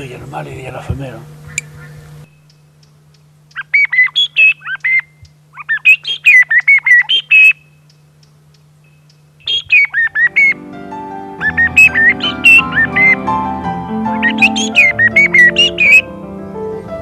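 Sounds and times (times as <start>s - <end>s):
bird call whistle chirps: 3.5s - 7.8s, 8.8s - 10.6s, 11.4s - 13.2s, 14.1s - 16.1s.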